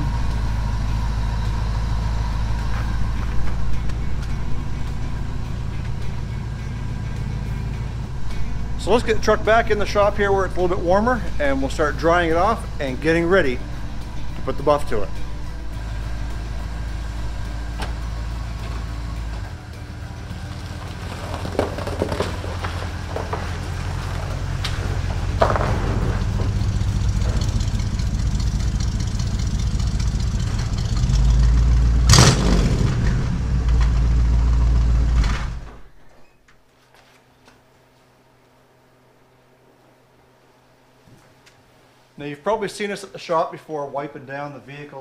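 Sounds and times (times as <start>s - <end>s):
pickup truck engine idling: 0.0s - 35.9s.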